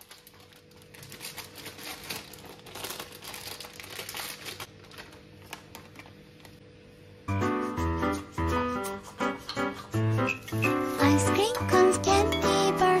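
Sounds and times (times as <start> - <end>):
plastic packet crinkling: 0.0 - 6.5.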